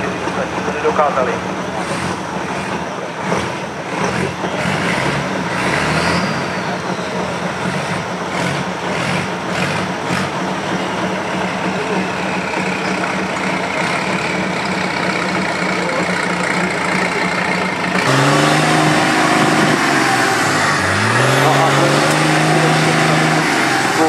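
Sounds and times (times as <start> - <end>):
diesel engine running: 0.0 - 24.0
engine revving: 0.0 - 24.0.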